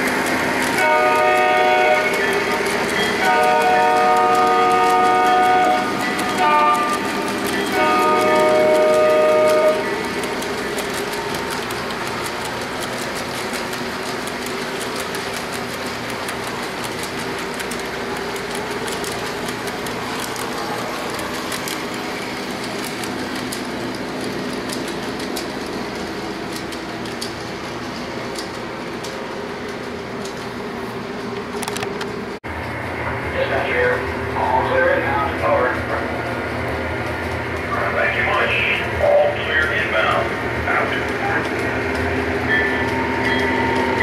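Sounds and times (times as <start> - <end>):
wheel clicks: 0.0 - 30.5
model train cars rumbling on track: 0.0 - 44.0
model train horn chord: 0.8 - 2.3, 3.2 - 7.1, 7.7 - 10.0.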